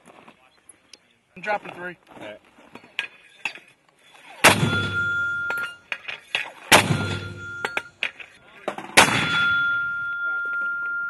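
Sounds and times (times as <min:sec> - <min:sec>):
high metallic ring: 0:04.5 - 0:05.9, 0:06.8 - 0:08.0, 0:09.2 - 0:11.0.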